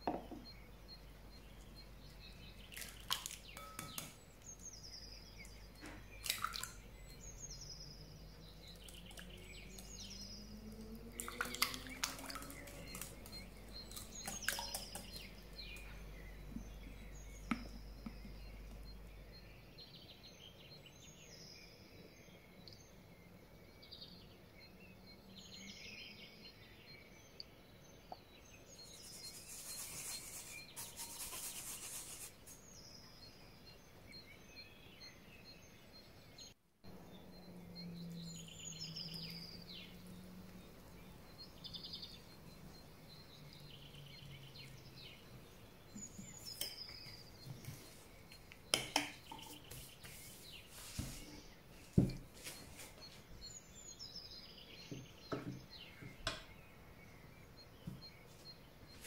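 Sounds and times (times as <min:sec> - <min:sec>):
small birds chirping: 0:00.0 - 0:59.0
rasping scraping kitchen work: 0:29.0 - 0:32.4.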